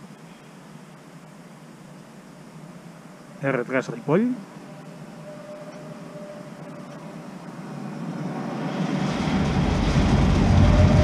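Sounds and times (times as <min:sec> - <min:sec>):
train rumble: 0:02.7 - 0:11.0.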